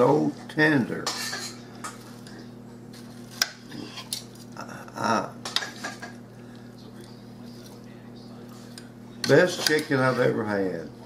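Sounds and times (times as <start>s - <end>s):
knife and fork scraping plate: 1.0s - 2.2s, 2.9s - 4.5s, 9.2s - 10.4s.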